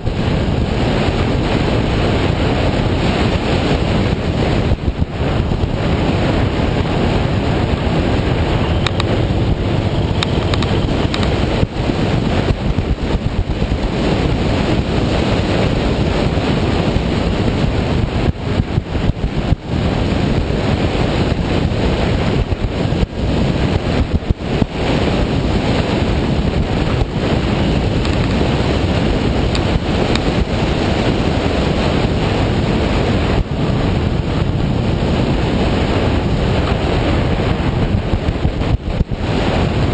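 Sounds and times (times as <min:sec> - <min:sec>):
motorcycle engine: 0:00.0 - 0:17.6, 0:25.4 - 0:31.5
tyre noise on road: 0:00.0 - 0:39.9
wind rushing over microphone: 0:00.0 - 0:39.9.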